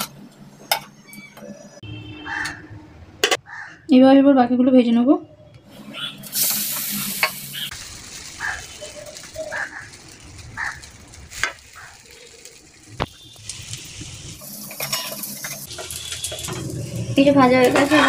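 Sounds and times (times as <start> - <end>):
bread sizzling in hot oil: 6.1 - 18.0.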